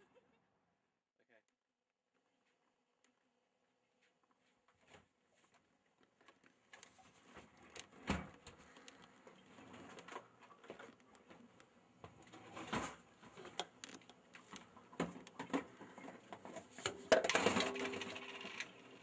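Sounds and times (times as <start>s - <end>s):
faint clicks and knocks: 4.2s - 18.7s.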